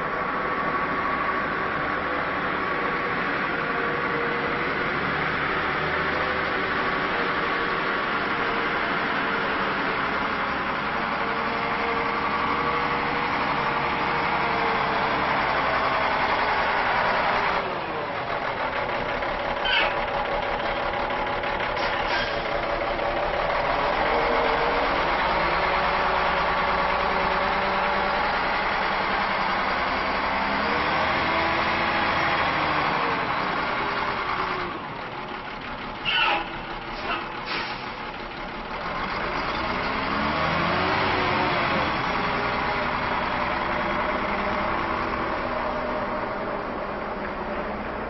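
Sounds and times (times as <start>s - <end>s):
diesel truck engine: 0.0s - 48.0s
high squeak: 19.6s - 20.0s.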